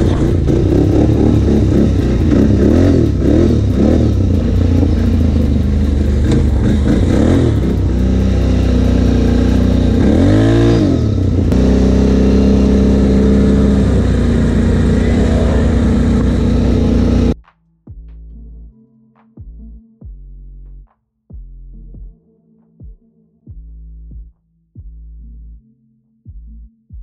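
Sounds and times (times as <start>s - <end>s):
atv engine revving: 0.0s - 17.4s.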